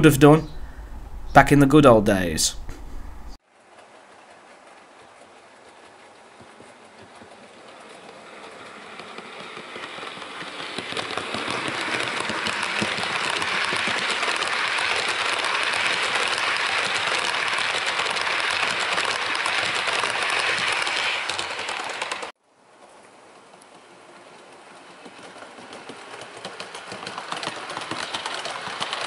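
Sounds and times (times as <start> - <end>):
model train rumbling past: 2.7 - 29.0
wheel clicks: 3.7 - 22.3, 23.4 - 29.0.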